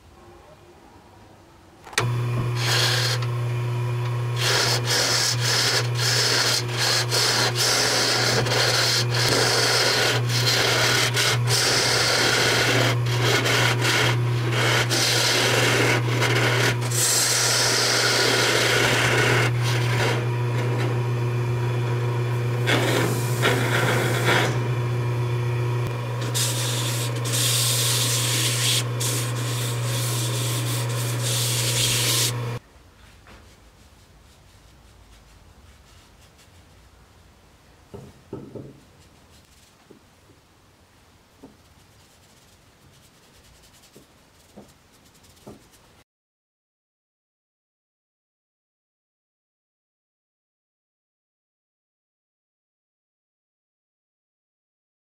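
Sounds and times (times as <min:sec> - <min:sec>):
chisel scraping spinning wood: 0:02.0 - 0:32.6
lathe motor humming: 0:02.0 - 0:32.6.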